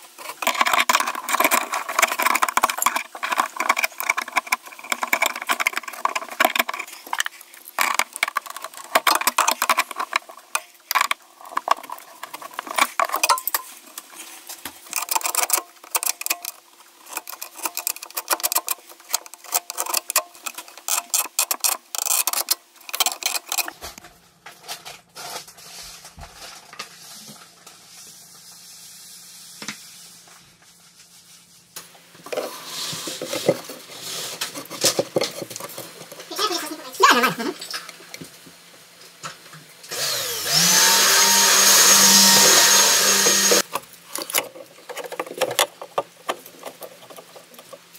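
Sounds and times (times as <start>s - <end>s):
pliers clinking and scraping metal: 0.2s - 14.0s.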